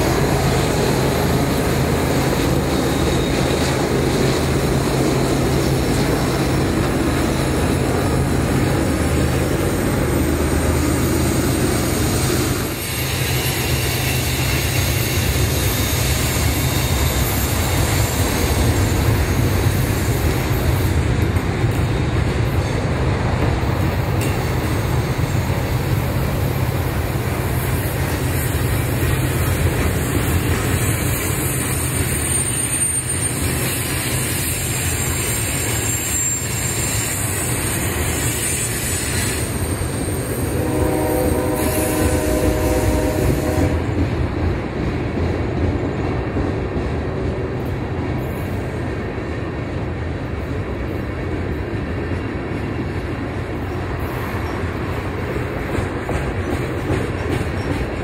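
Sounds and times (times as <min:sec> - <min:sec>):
high wheel squeal: 0:00.0 - 0:21.0, 0:27.6 - 0:43.7
train wheels rumbling on rail: 0:00.0 - 0:58.0.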